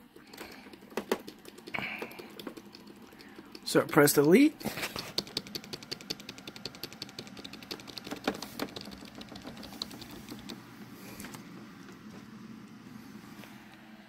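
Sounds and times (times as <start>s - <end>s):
keyboard key clicks: 5.0s - 10.6s.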